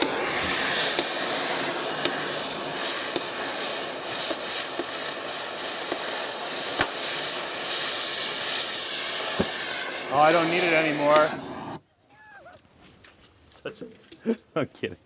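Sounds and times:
cutting torch hissing: 0.0 - 11.8
sharp pops: 0.0 - 11.8.

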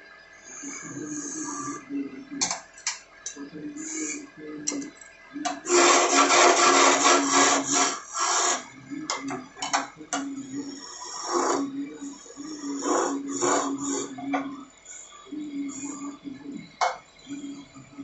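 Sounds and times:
lathe humming: 0.0 - 18.0
turning tool scraping wood: 5.6 - 8.7.

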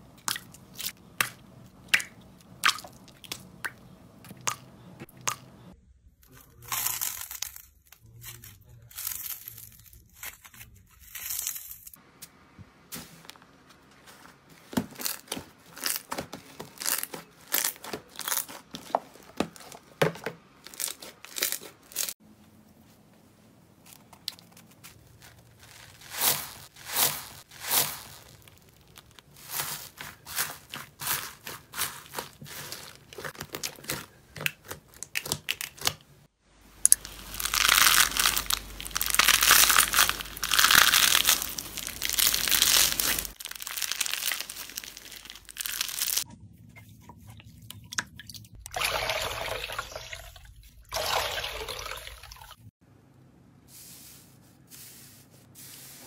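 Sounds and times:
wet squishing: 0.2 - 5.8, 24.2 - 36.1, 36.8 - 46.3
foam beads crackling: 6.5 - 12.0, 14.9 - 18.9, 23.9 - 34.1, 36.8 - 46.2
sponge pieces crackling: 6.6 - 22.2, 23.8 - 46.3.

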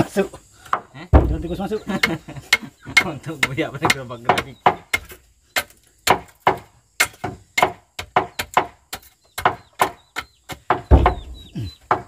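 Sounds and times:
hammer blows on wooden boards: 0.6 - 12.0
heavy deep thud: 1.1 - 1.8, 10.9 - 11.5.

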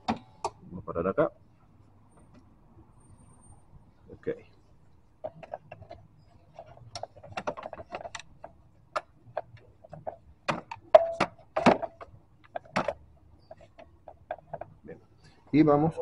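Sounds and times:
car parts clicking and knocking: 0.0 - 0.6, 5.0 - 15.4.

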